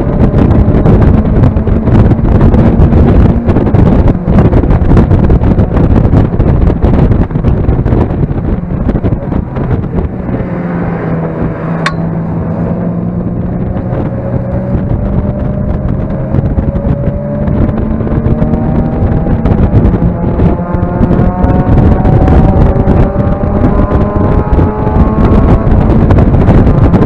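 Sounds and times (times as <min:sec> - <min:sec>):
car engine revving: 0:00.0 - 0:27.0
wind noise on microphone: 0:00.0 - 0:27.0.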